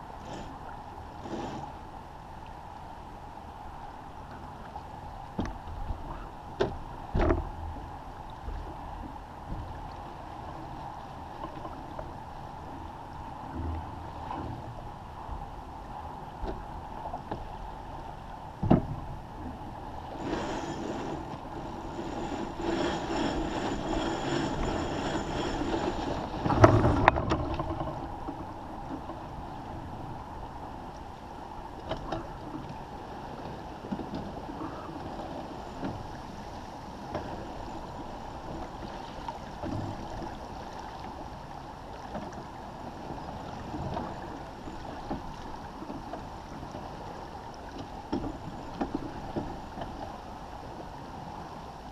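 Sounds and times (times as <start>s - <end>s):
water rushing along hull: 0.0s - 51.9s
wind on microphone: 5.3s - 30.9s
rope and rigging noise: 20.2s - 28.0s.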